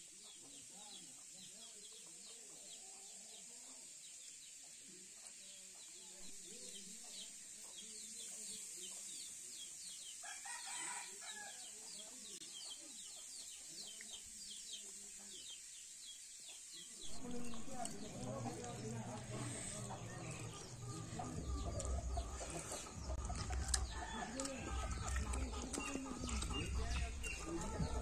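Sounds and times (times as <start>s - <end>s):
steady high hiss: 0.0s - 23.2s
rooster crowing: 10.2s - 11.7s
chickens clucking: 11.8s - 15.6s, 16.4s - 28.0s
rapid chirping: 15.4s - 28.0s.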